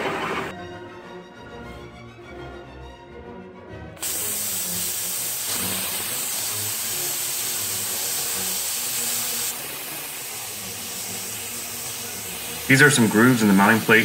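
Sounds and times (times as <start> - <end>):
plasma torch hissing: 4.0 - 14.0.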